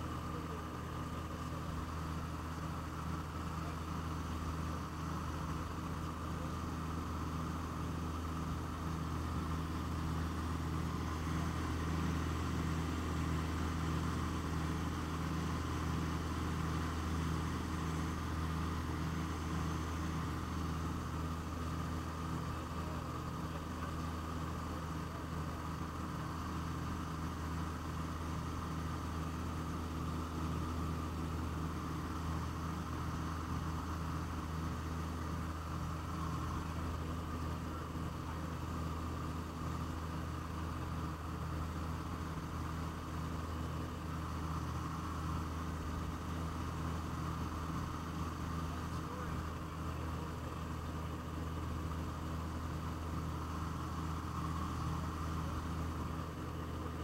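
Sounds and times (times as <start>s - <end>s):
aircraft cabin engine drone: 0.0s - 57.0s.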